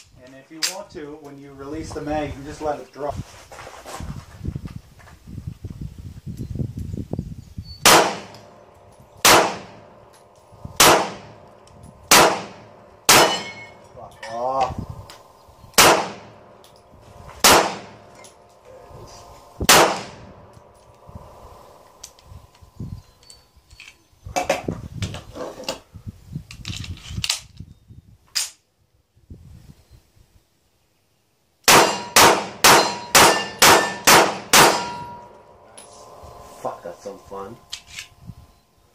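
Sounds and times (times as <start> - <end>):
handgun shots: 7.9 - 8.5, 9.2 - 9.8, 10.8 - 11.4, 12.1 - 13.7, 15.8 - 16.4, 17.4 - 17.9, 19.7 - 20.2, 31.7 - 35.2.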